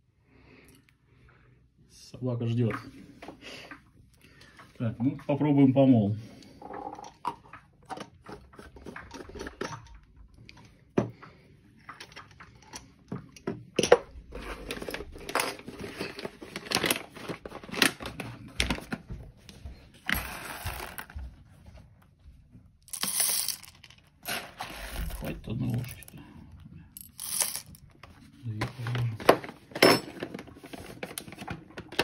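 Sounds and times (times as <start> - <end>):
coffee beans poured into hopper: 20.1 - 21.1, 22.9 - 26.1, 27.0 - 27.8.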